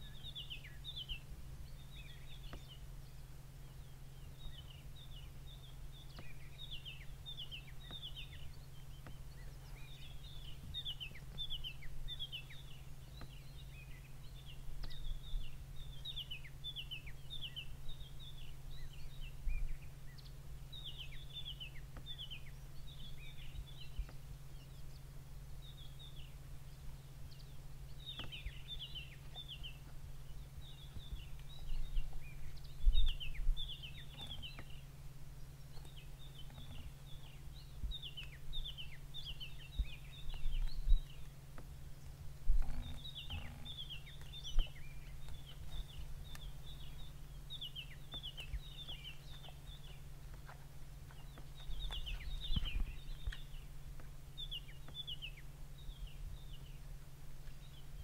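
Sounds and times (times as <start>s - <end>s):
birds chirping: 0.0s - 58.0s
steady low hum: 0.0s - 58.0s
dull low thumps: 28.0s - 55.1s.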